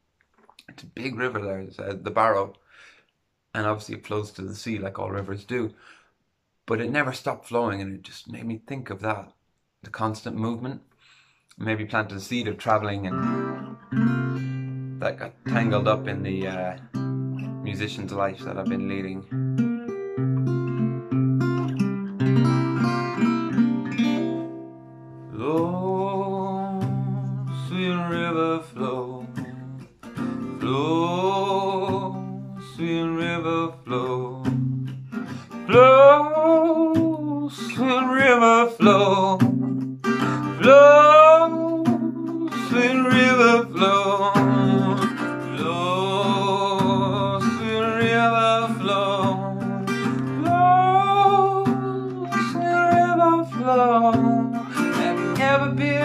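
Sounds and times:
acoustic guitar: 0:11.6 - 0:56.0
man singing: 0:15.0 - 0:16.8, 0:25.3 - 0:29.9, 0:30.6 - 0:34.7, 0:35.5 - 0:56.0.

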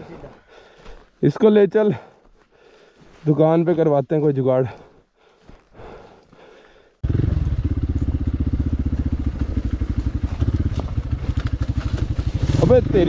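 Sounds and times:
dirt bike engine running: 0:07.0 - 0:13.0.

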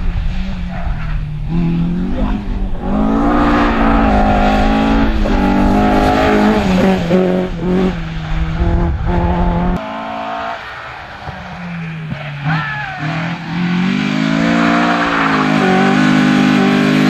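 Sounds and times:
distant rally car engine: 0:00.0 - 0:17.0
rally car engine revving: 0:00.0 - 0:17.0.

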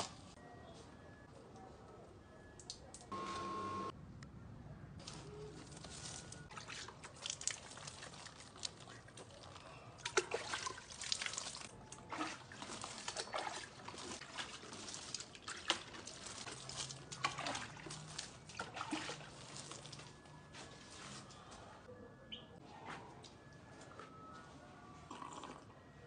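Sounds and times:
water splashing onto soil: 0:06.5 - 0:09.4, 0:10.0 - 0:20.0.

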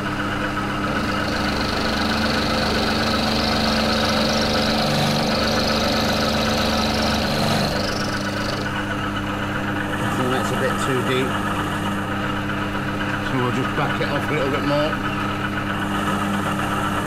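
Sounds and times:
machine drive hum: 0:00.0 - 0:17.0
cutter cutting metal: 0:00.7 - 0:08.8.

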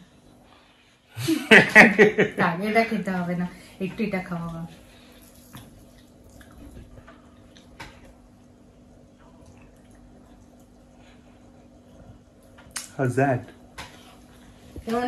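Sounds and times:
steady low hum: 0:00.0 - 0:15.0
food torn and eaten: 0:05.1 - 0:07.8.

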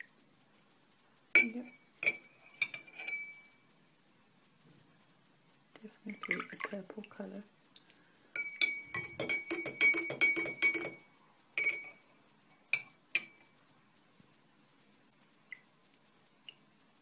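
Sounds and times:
teaspoon clinking against glass: 0:01.4 - 0:03.6, 0:08.4 - 0:12.0, 0:12.7 - 0:13.5.

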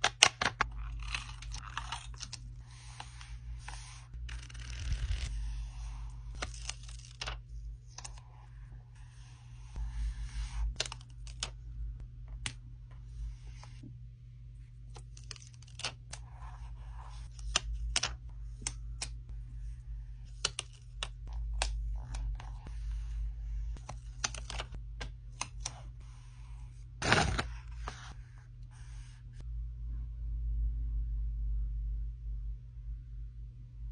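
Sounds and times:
paper rustling: 0:00.5 - 0:07.4, 0:27.0 - 0:28.2.

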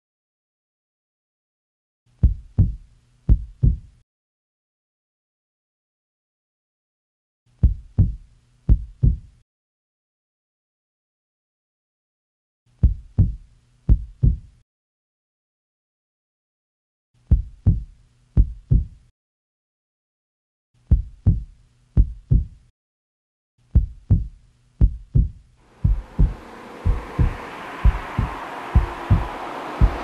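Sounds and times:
heartbeat thumps: 0:02.2 - 0:03.9, 0:07.6 - 0:09.3, 0:12.8 - 0:14.5, 0:17.3 - 0:19.0, 0:20.9 - 0:22.6, 0:23.8 - 0:30.0.

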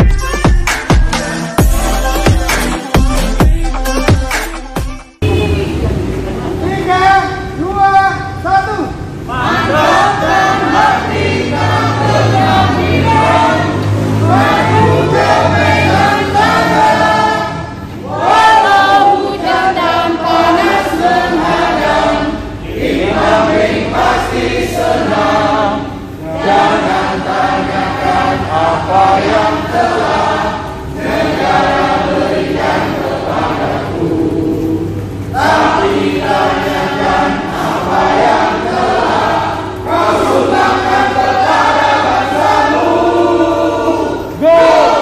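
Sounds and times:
group of adults singing: 0:09.1 - 0:45.0.

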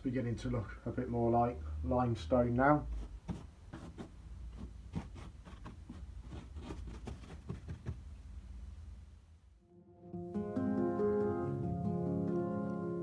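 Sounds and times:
paintbrush tapping on plaster: 0:03.3 - 0:08.1.

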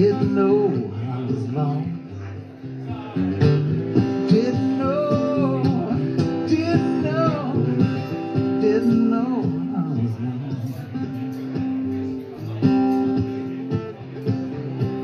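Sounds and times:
man singing: 0:00.0 - 0:11.2
acoustic guitar strumming: 0:00.0 - 0:15.0.

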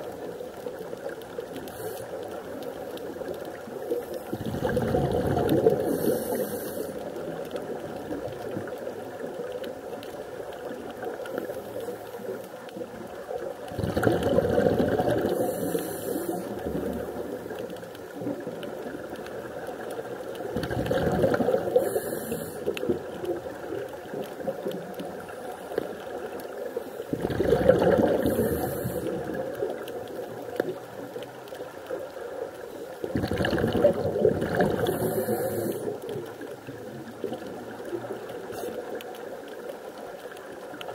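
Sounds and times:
exhaled air bubbling: 0:00.0 - 0:40.9
underwater wash: 0:00.0 - 0:40.9
regulator hiss: 0:05.8 - 0:07.1, 0:15.3 - 0:16.8, 0:21.7 - 0:22.7, 0:34.8 - 0:36.0.

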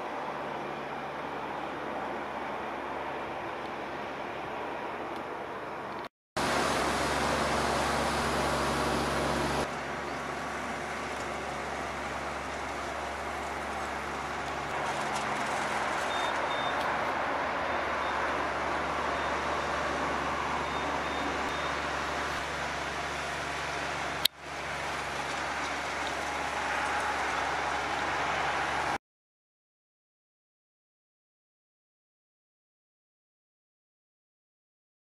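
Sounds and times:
rotary tiller turning soil: 0:06.4 - 0:17.0, 0:19.4 - 0:28.9
tractor diesel engine running: 0:06.4 - 0:29.0.

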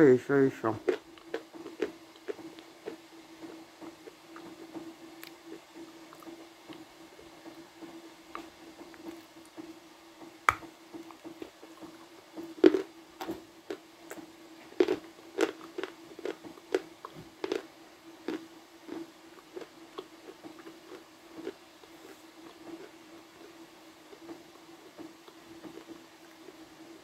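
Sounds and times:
person chewing and crunching clay: 0:00.8 - 0:03.0, 0:12.6 - 0:12.9, 0:13.7 - 0:26.6.

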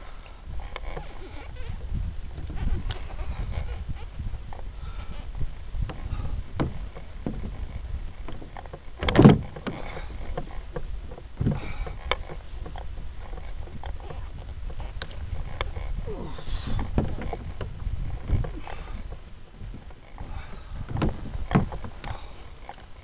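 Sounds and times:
wind rumble on microphone: 0:00.0 - 0:23.0
fishing gear clicks and knocks: 0:05.8 - 0:23.0.

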